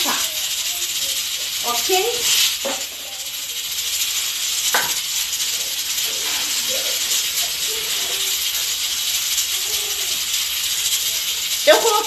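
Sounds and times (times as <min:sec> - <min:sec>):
pressure cooker hissing: 0:00.0 - 0:12.0
dishes clattering: 0:02.6 - 0:03.2, 0:04.6 - 0:08.8.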